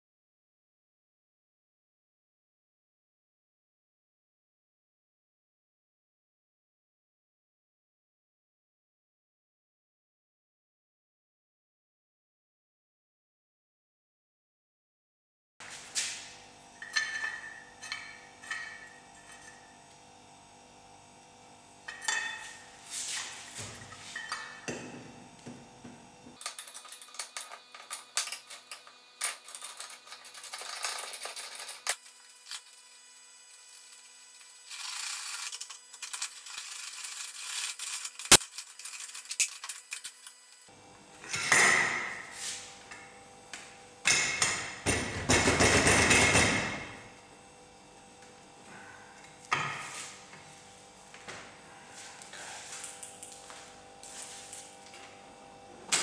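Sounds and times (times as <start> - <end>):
metal scraping and clinking: 16.7 - 19.8, 26.4 - 32.9, 33.6 - 40.7.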